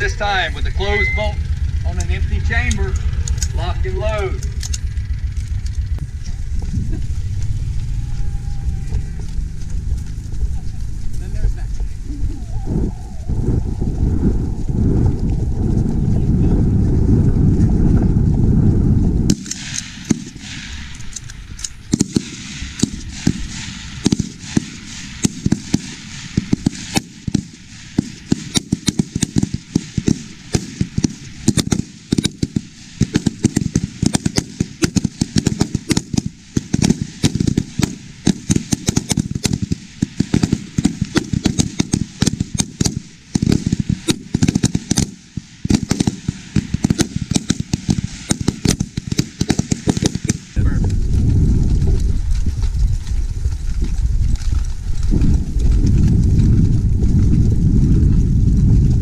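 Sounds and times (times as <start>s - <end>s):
rapid rifle shots: 19.3s - 21.2s, 21.9s - 50.6s.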